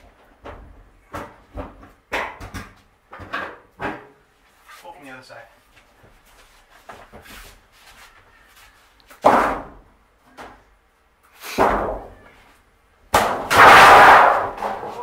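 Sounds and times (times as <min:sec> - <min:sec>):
light scuffing: 0:04.4 - 0:09.2
loud metallic crashes: 0:13.2 - 0:14.9.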